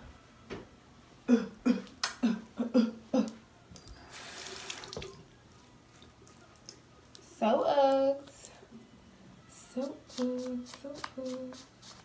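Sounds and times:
tap water running: 4.0 - 5.3.

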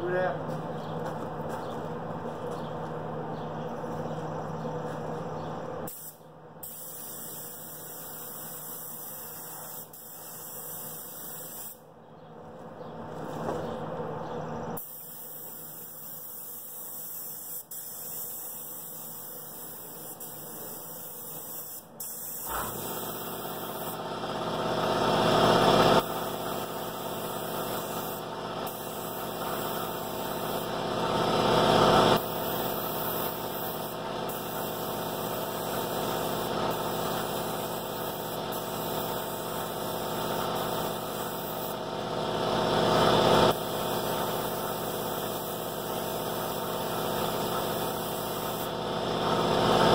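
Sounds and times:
spray gun hissing: 5.9 - 11.8, 14.8 - 24.0, 26.0 - 30.8, 32.2 - 41.8, 43.5 - 48.8
air compressor humming: 13.5 - 49.9.

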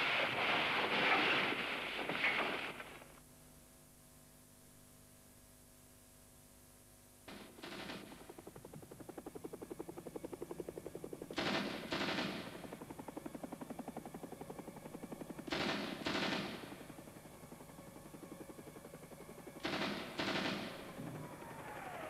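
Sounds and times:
rapid pulsing soundtrack: 11.5 - 22.0.

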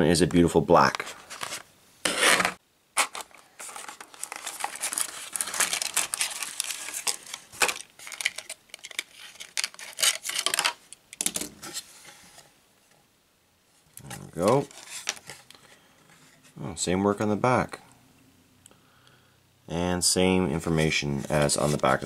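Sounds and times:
plastic packaging crinkling: 1.1 - 11.4.

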